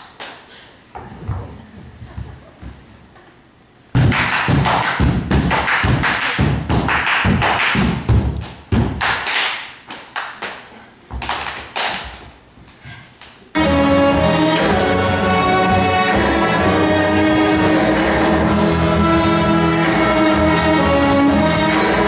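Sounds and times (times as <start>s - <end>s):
hand slaps and claps: 0.0s - 0.6s, 4.0s - 12.4s
music: 13.6s - 22.0s.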